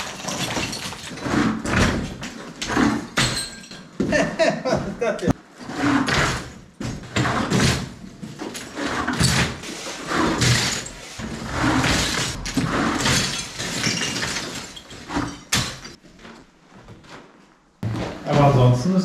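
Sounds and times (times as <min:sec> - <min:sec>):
rubble clattering from bucket: 0:00.0 - 0:02.1, 0:10.3 - 0:16.0.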